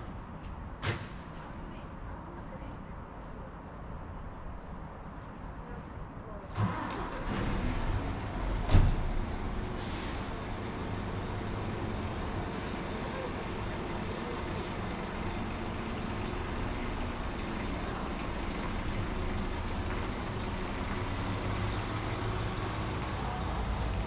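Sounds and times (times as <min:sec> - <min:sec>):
outdoor background noise: 0:00.0 - 0:24.0
diesel engine running: 0:06.5 - 0:24.0.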